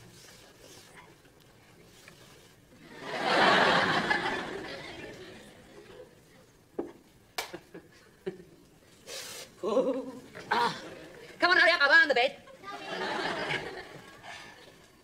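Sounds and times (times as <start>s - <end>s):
studio audience laughing: 2.8s - 6.1s, 12.5s - 14.9s.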